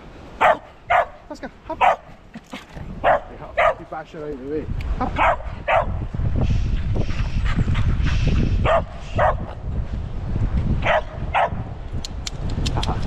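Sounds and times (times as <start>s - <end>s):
small dog barking: 0.4s - 1.2s, 1.8s - 2.1s, 3.0s - 3.8s, 5.2s - 6.0s, 8.6s - 9.5s, 10.8s - 11.6s.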